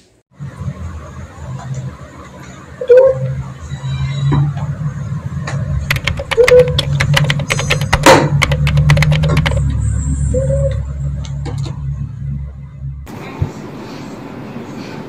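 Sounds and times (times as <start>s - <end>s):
laptop keyboard clicking: 5.8s - 9.7s.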